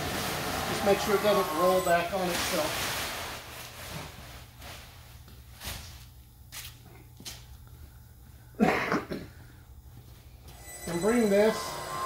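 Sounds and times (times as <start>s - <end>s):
footsteps on concrete floor: 5.2s - 8.5s, 9.3s - 10.6s.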